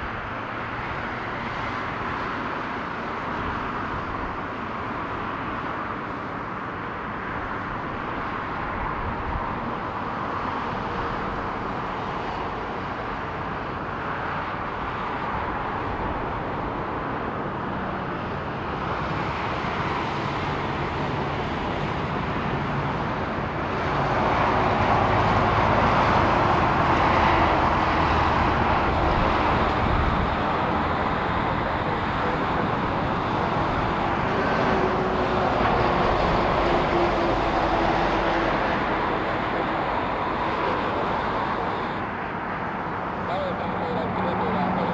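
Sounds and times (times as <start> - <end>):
jet airliner landing: 15.0 - 44.9.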